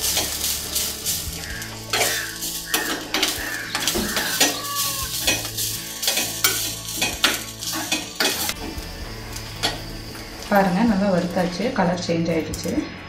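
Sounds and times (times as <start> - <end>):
metal spoon scraping a pan: 0.0 - 8.8.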